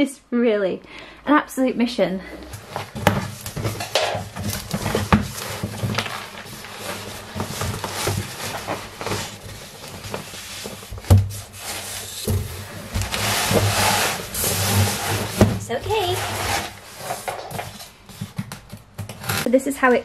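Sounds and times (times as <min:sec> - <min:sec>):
cardboard box being handled: 0:02.5 - 0:18.4.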